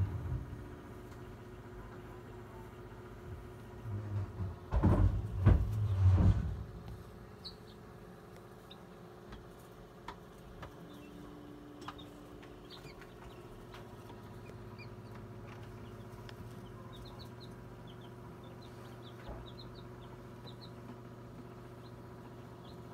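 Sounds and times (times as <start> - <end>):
incubator low hum: 0.0 - 22.9
chicks peeping: 6.7 - 22.9.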